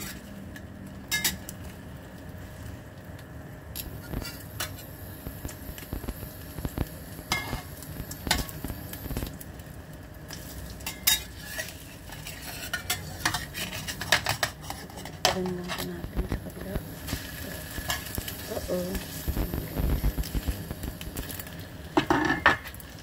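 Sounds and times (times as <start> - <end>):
spatula scraping frying pan: 0.0 - 0.3, 3.9 - 4.8, 10.3 - 15.9
bread sizzling in oil: 0.0 - 23.0.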